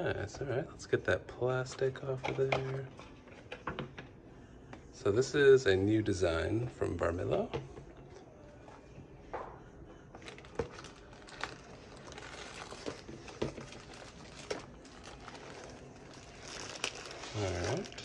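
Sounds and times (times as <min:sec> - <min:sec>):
plastic bag crinkling: 0:10.2 - 0:18.0.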